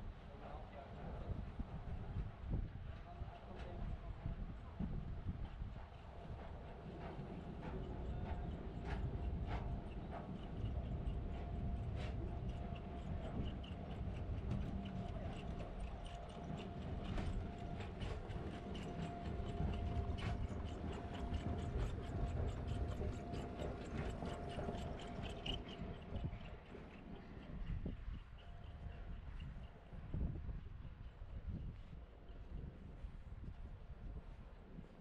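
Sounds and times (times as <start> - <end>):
faint steady hum: 6.0 - 35.0
low street rumble: 6.7 - 29.1.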